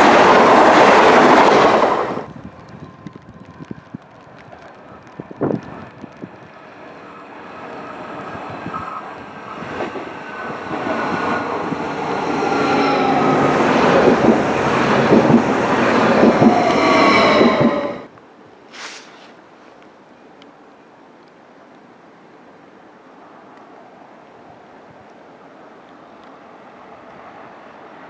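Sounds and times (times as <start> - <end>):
wheel and rail rumble: 0.0 - 20.7.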